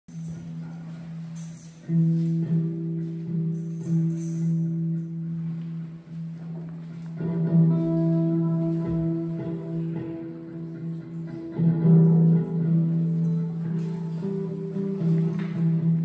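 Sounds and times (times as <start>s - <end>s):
tambourine shakes: 0.1s - 5.2s
electric guitars sustained notes: 1.8s - 16.0s.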